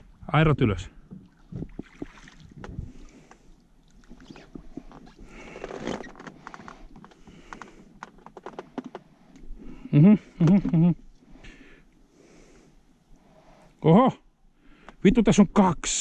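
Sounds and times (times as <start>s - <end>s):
knocks and clicks in rowboat: 1.0s - 3.4s, 4.3s - 9.5s.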